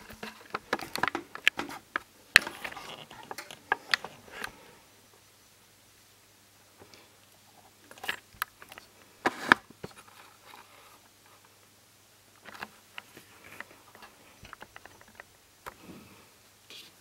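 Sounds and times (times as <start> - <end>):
hands handling plastic lamp clips: 0.0 - 4.6, 7.8 - 10.7, 12.4 - 15.8
scraping rustle: 0.0 - 4.8.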